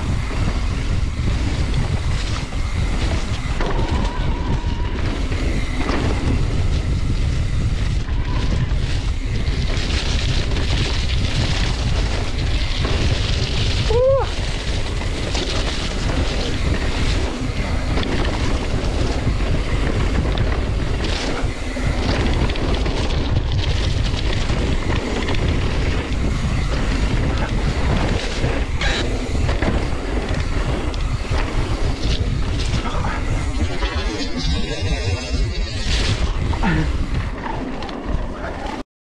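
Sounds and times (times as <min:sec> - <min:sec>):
bike knocks and rattles: 0:00.0 - 0:33.6
tyres rolling over dirt: 0:00.0 - 0:38.8
wind buffeting microphone: 0:00.0 - 0:38.8.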